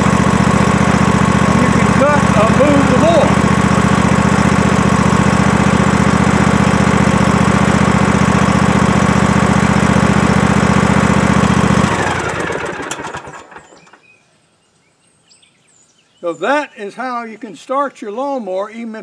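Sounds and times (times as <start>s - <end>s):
riding mower engine running: 0.0s - 14.0s.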